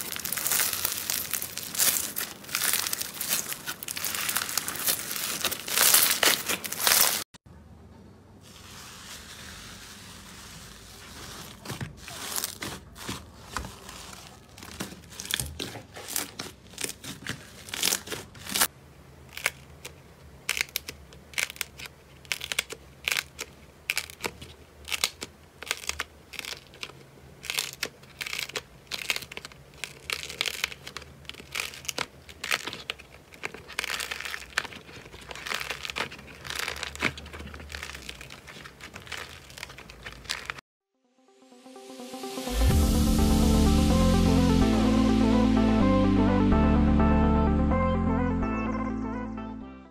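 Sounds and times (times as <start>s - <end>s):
hands squishing slime: 0.0s - 7.2s, 20.5s - 40.6s.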